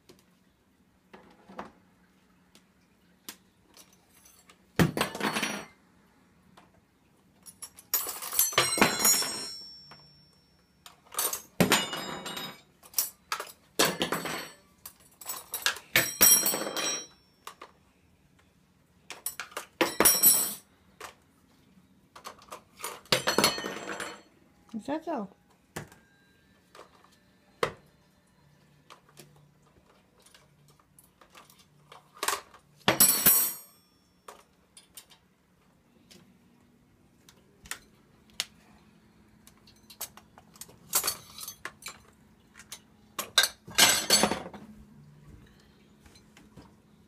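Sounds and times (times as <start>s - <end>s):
metal cutlery clattering on floor: 3.8s - 5.7s, 7.4s - 10.0s, 10.9s - 17.6s, 19.1s - 20.6s, 22.2s - 24.2s, 31.2s - 35.2s, 39.7s - 42.1s, 42.7s - 44.6s.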